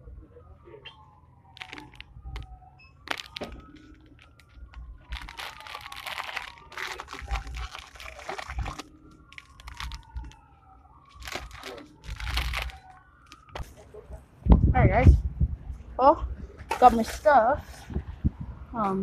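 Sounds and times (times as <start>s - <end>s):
plastic bag crinkling: 1.6s - 10.4s, 11.1s - 13.6s.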